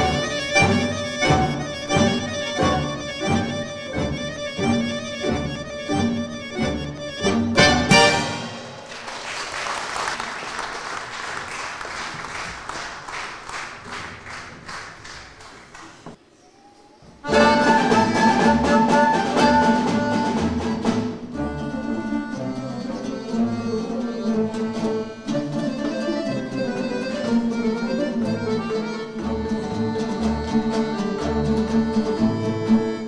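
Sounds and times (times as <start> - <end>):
folk ensemble playing: 0.0 - 8.9, 17.3 - 33.0.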